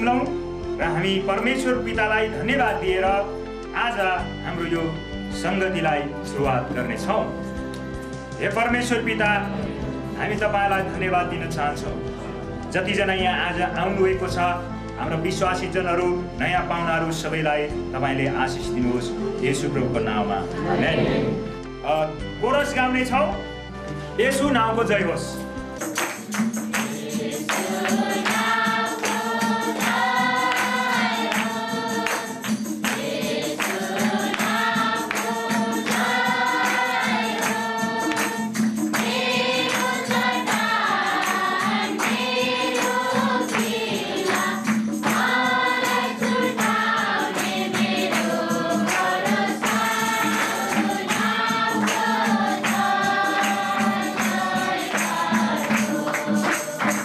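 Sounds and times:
congregation singing: 0:18.1 - 0:21.8, 0:25.9 - 0:57.0
hand clapping: 0:25.8 - 0:57.0.

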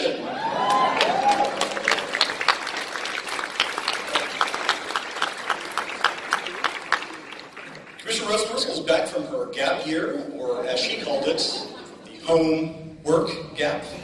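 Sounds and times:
audience applauding: 0:00.4 - 0:08.4.

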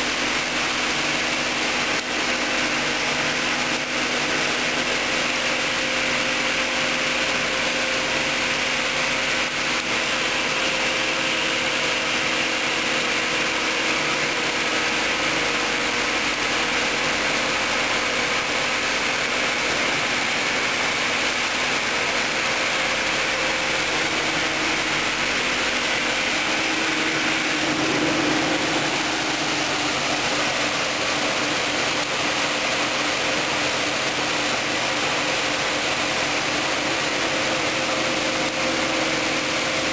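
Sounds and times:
saw cutting stone: 0:00.0 - 0:39.9
saw motor hum: 0:00.0 - 0:39.9.

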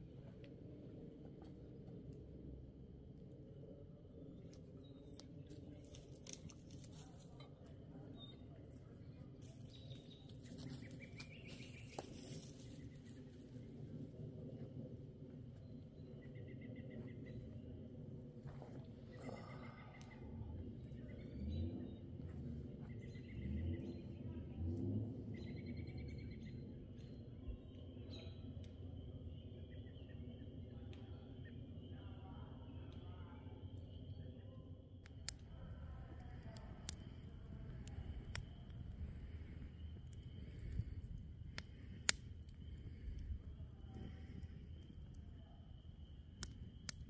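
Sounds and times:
low rumbling background: 0:00.0 - 0:47.0
campfire crackling: 0:04.3 - 0:07.9, 0:35.0 - 0:47.0.

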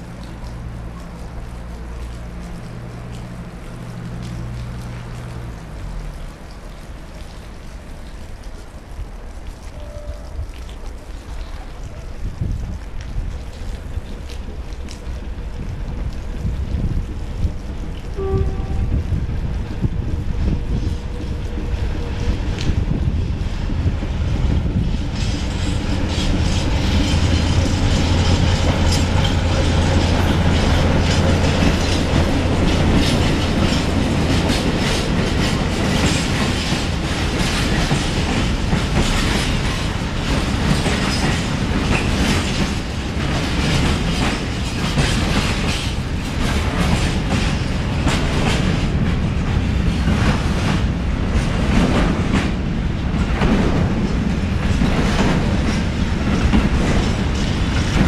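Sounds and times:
diesel locomotive engine droning: 0:13.9 - 0:58.0
train wheels clicking over rail joints: 0:19.4 - 0:58.0.

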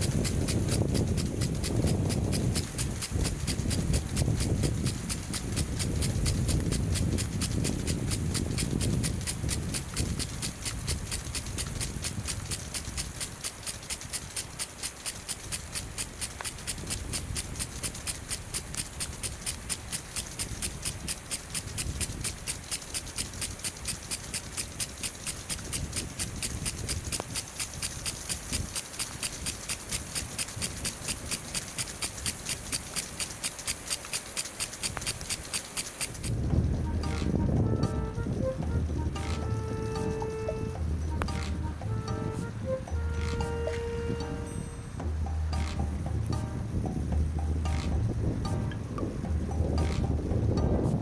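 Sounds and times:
steady hiss: 0:00.0 - 0:36.8
rhythmic clicking: 0:00.0 - 0:51.0.

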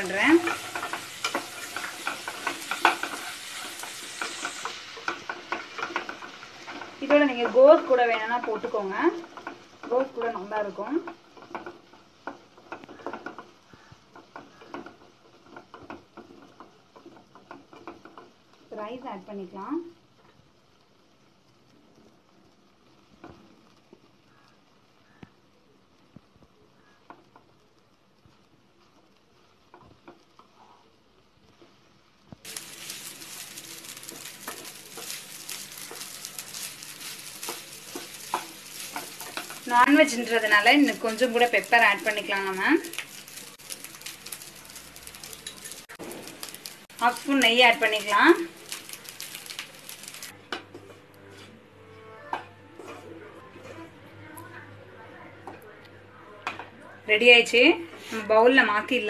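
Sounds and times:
spatula scraping a pan: 0:00.0 - 0:18.5, 0:32.4 - 0:53.9.

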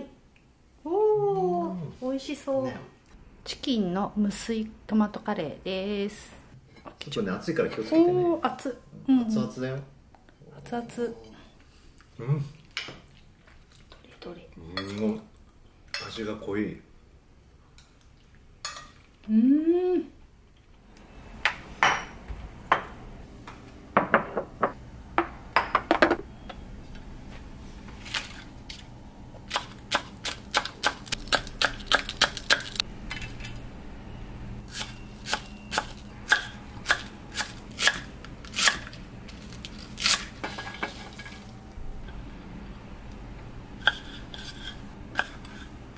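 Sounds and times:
person humming: 0:19.2 - 0:20.2.

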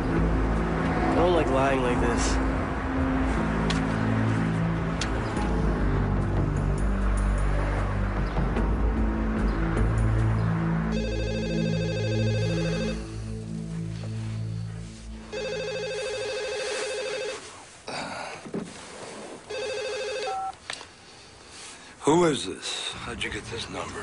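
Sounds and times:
low music: 0:00.0 - 0:16.8
mobile phone ringing: 0:10.9 - 0:13.2, 0:15.3 - 0:17.6, 0:19.5 - 0:20.6.

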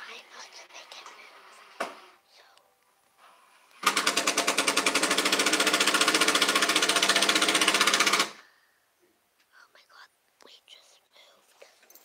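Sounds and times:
small motorised device rattling: 0:03.8 - 0:08.4.

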